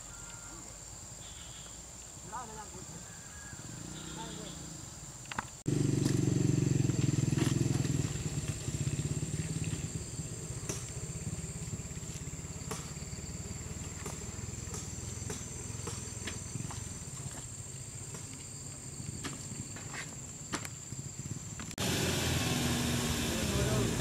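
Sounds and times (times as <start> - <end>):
engine idling: 5.7 - 24.0.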